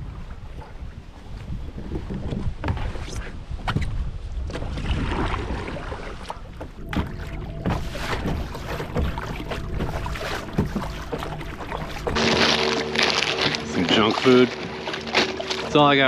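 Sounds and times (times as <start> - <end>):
wind buffeting microphone: 0.0 - 12.2
paddle splashing in water: 4.4 - 16.0
paddle knocks: 6.5 - 16.0.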